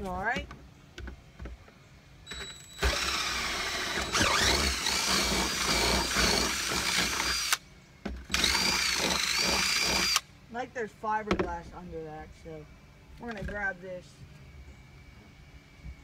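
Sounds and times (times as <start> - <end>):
cordless drill whining: 2.3 - 7.6, 8.3 - 10.2.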